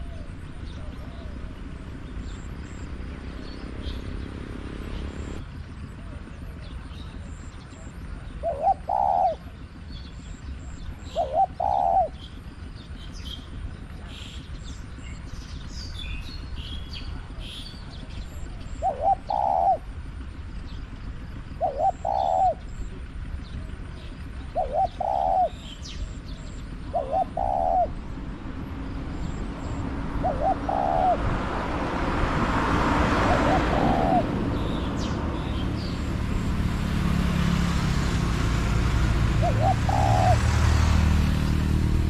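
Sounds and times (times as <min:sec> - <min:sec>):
dove cooing: 0:00.0 - 0:03.1, 0:08.1 - 0:09.9, 0:10.9 - 0:12.3, 0:17.1 - 0:20.3, 0:21.1 - 0:37.3, 0:39.1 - 0:40.9
vehicle noise: 0:00.0 - 0:42.0.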